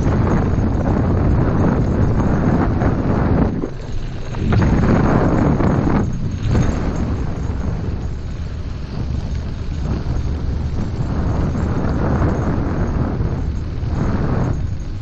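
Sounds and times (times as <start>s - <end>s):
wheels rolling on dirt trail: 0.0s - 15.0s
wind buffeting microphone: 0.0s - 15.0s.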